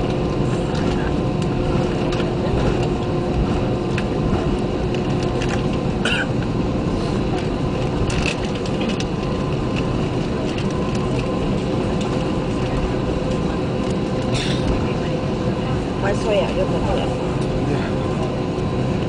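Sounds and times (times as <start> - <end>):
jet engines rumbling: 0.0 - 19.0.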